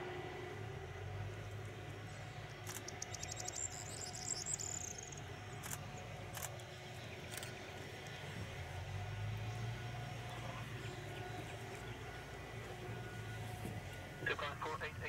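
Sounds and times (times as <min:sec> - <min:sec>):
jet engines rumbling and whining: 0:00.0 - 0:15.0
sharp ticks: 0:02.5 - 0:06.7
high-pitched chirping trill: 0:02.8 - 0:05.2.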